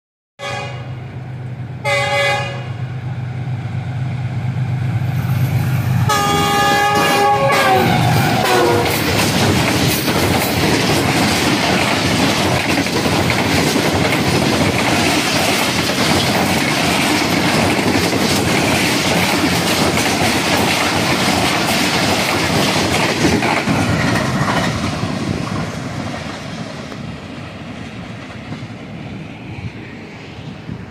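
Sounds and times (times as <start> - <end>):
locomotive horn blasts: 0.4 - 1.0, 1.8 - 2.8, 6.0 - 9.0
train wheels clattering over rail joints: 8.1 - 28.7.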